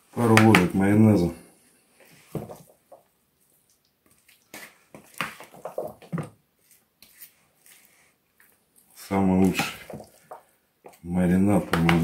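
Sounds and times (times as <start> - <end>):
spoon stirring wet squelches: 1.9 - 12.0.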